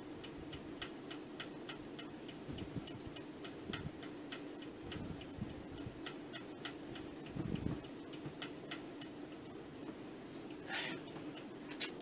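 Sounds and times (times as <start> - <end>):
room hum: 0.0 - 12.0
clock ticking: 0.2 - 9.6.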